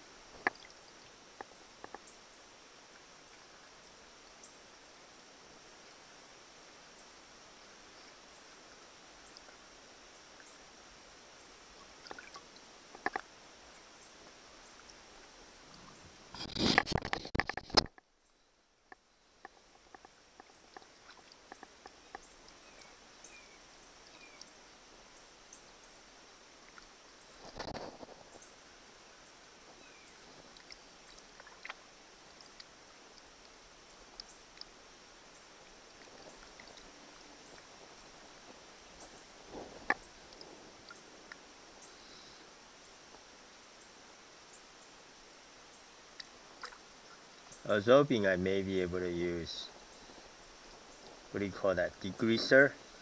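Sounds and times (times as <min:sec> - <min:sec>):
faint water drips and clicks: 0:00.3 - 0:04.9, 0:05.7 - 0:16.0, 0:18.8 - 0:28.6, 0:29.2 - 0:42.2, 0:45.7 - 0:47.7.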